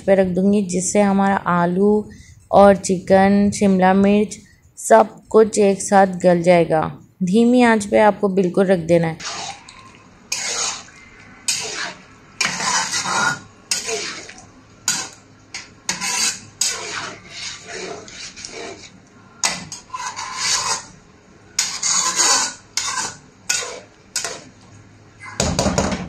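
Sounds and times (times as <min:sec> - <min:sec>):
spatula scraping a wok: 0:09.2 - 0:09.7, 0:10.3 - 0:21.0, 0:21.6 - 0:24.5.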